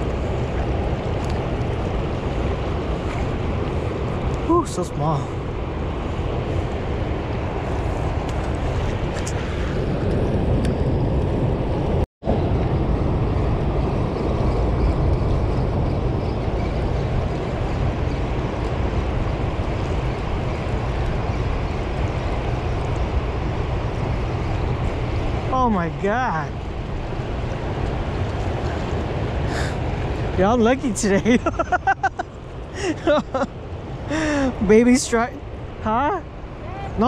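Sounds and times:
wind buffeting microphone: 0.0s - 37.0s
turbulent river water roaring: 11.4s - 37.0s.

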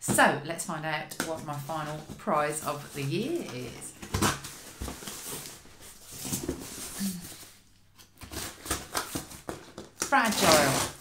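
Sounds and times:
packing tape being cut: 8.2s - 11.0s.

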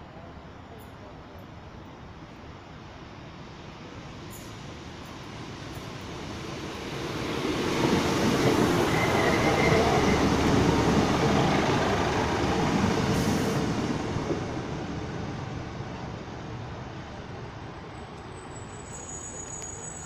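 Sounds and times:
train wheels on rails: 4.2s - 16.0s
thin squeal: 18.6s - 20.0s.

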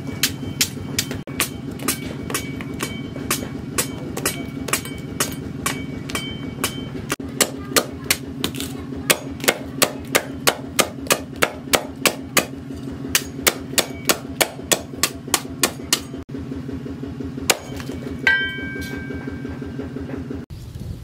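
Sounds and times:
sharp ringing metallic hit: 0.0s - 7.2s, 17.4s - 19.8s
steady low hum: 0.0s - 21.0s
cleaver chopping on wooden block: 0.2s - 16.1s.

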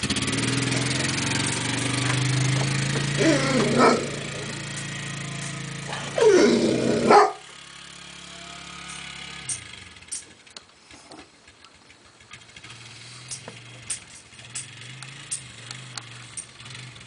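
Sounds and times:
atv engine running: 0.0s - 17.0s
dog barking: 3.3s - 4.3s, 5.9s - 7.5s.

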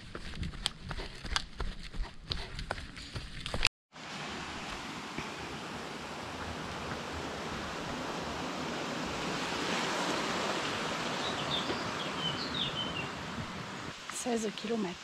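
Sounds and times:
stream rushing: 3.9s - 15.0s
bird chirping: 11.2s - 13.2s.

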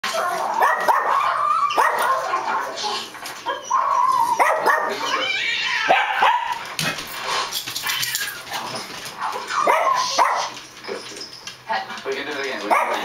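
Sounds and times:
dog whining: 0.0s - 6.6s, 7.3s - 11.7s
small dog barking: 0.2s - 2.7s, 3.4s - 5.2s, 5.9s - 6.6s, 9.2s - 10.6s, 12.7s - 13.0s.

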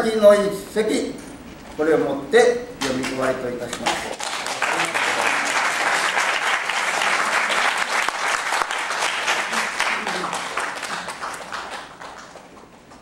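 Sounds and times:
audience applauding: 3.8s - 13.0s.

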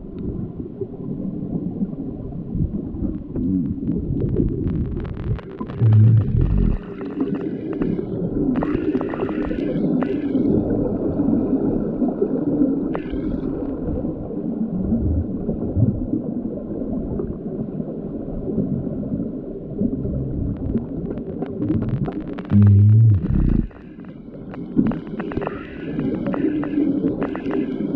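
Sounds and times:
underwater bubbling: 0.0s - 27.9s
underwater churning of water: 0.0s - 27.9s
underwater clicks and knocks: 3.1s - 10.2s, 20.5s - 27.9s.

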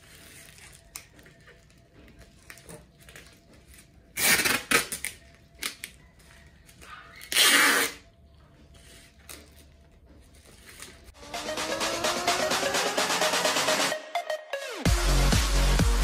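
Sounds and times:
packing tape ripping off roll: 2.5s - 5.9s, 7.1s - 8.0s.

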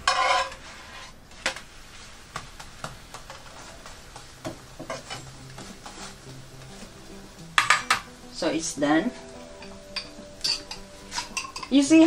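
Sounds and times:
spatula tapping frying pan: 2.3s - 8.1s, 9.6s - 11.9s
pan clatter: 7.6s - 8.1s, 9.6s - 11.9s.

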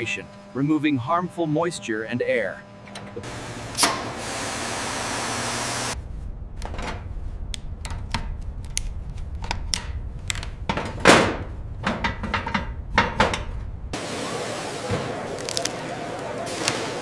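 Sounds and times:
low steady hum: 5.8s - 17.0s.

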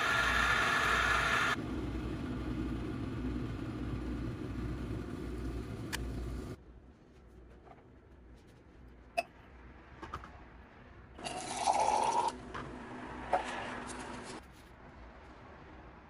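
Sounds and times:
water pouring into metal cup: 11.2s - 12.4s.

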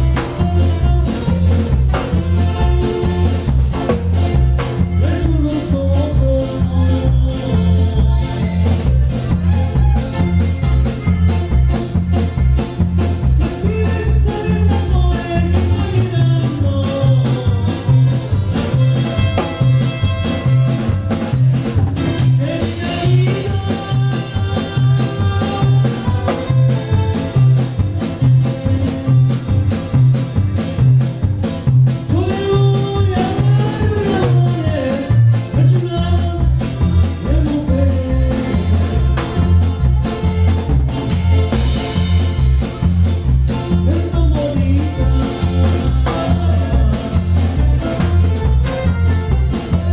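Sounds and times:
bass alternating notes: 0.0s - 49.9s
drums: 0.0s - 49.9s
live band playing dance tune: 0.0s - 49.9s
person singing melody: 4.6s - 12.4s, 13.2s - 20.6s, 22.1s - 27.8s, 32.0s - 40.5s, 41.5s - 49.9s.

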